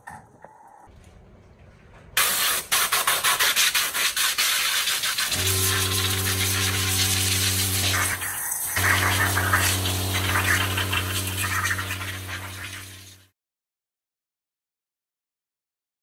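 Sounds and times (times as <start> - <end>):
water spraying with a hiss: 2.2 - 13.3
pressure washer motor humming: 5.3 - 13.3.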